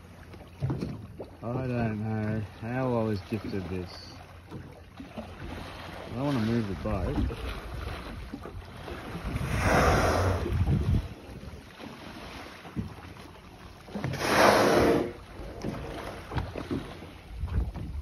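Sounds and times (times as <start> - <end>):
wind rumble on microphone: 6.8 - 11.6, 17.2 - 18.0
whale blowing exhalations: 9.3 - 10.7, 14.0 - 15.6.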